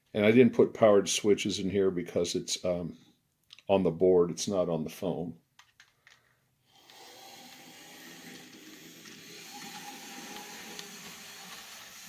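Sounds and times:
model train motor whirring: 6.7 - 12.0
wheels hissing on rails: 7.0 - 12.0.

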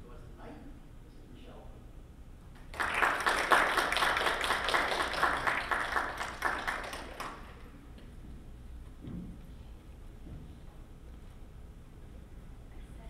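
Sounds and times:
audience applauding: 2.6 - 7.7.

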